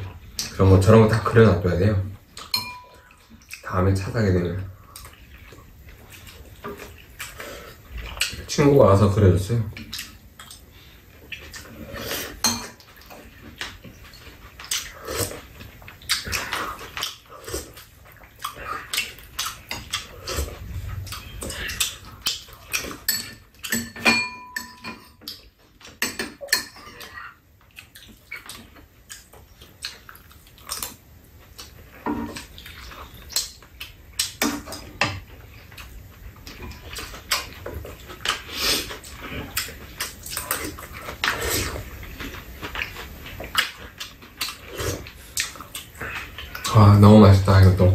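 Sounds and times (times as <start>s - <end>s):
metal utensils clinking on bowls: 2.5s - 3.2s, 22.8s - 25.3s
people eating mouth sounds: 9.7s - 24.0s, 25.2s - 47.9s.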